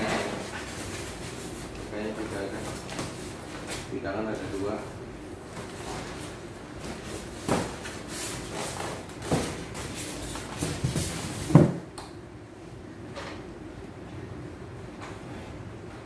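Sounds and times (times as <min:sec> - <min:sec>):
items knocking on styrofoam box: 0:10.6 - 0:11.8.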